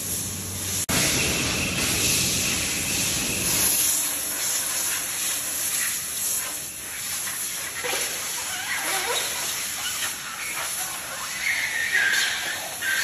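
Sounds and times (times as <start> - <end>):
rubber squeaks: 7.2 - 13.0.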